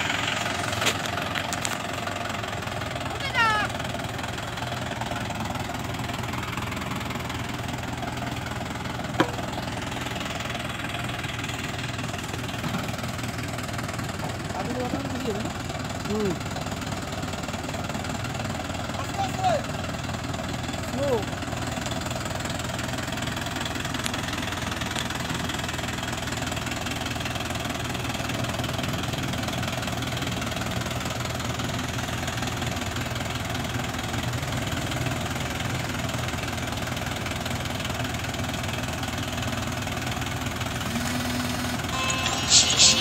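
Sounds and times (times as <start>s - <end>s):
diesel tractor engine running: 0.0s - 43.0s
held tone: 40.8s - 43.0s
loud sharp high sounds: 40.9s - 43.0s.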